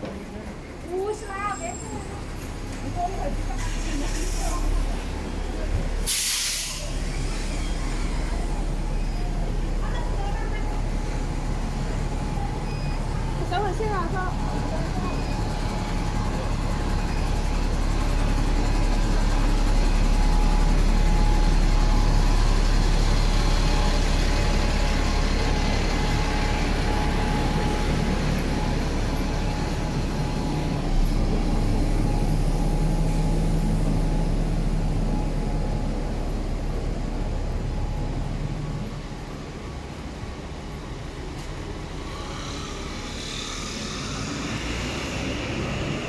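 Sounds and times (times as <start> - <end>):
bus engine rumble: 0.0 - 46.0.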